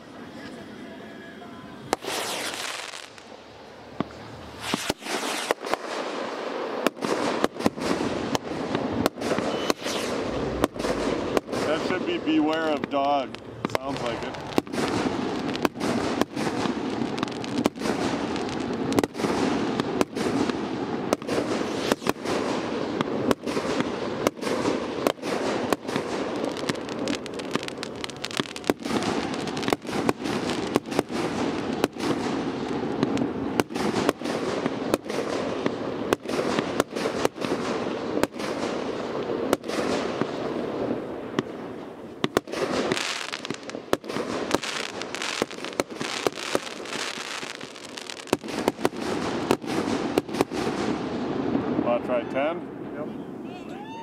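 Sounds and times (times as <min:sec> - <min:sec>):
firework spraying sparks: 0:01.8 - 0:41.5, 0:42.2 - 0:51.2.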